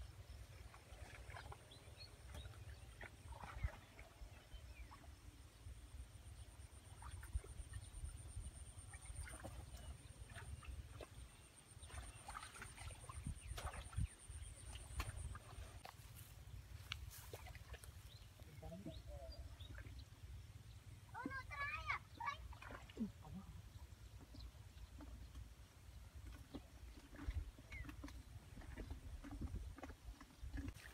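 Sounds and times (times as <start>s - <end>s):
wind rumble on microphone: 13.1s - 15.7s, 26.9s - 30.8s.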